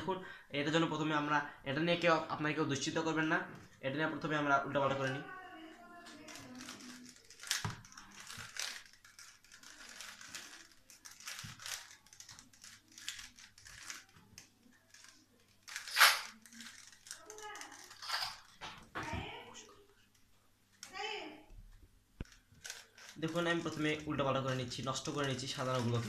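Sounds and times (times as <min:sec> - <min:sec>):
puzzle cube clicking: 0:06.1 - 0:18.1.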